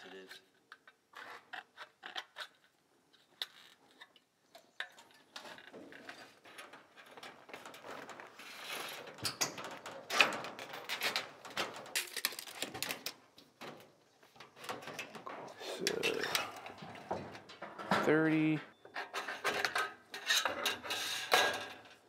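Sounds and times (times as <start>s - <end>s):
metal trim clicking and clattering: 9.1s - 18.2s.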